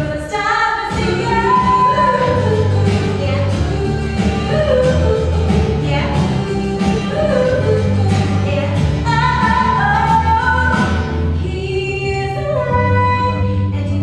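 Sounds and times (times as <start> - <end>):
people singing a melody: 0.3 - 11.1
instrumental backing: 0.9 - 14.0.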